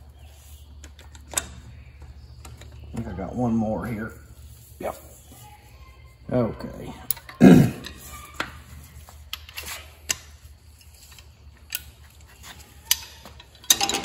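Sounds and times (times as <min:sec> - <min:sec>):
metal hand tools clinking: 0:10.8 - 0:14.0.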